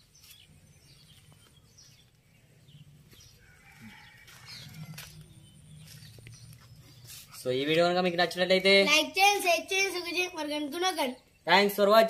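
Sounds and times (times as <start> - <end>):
bird chirps: 0.0 - 9.0.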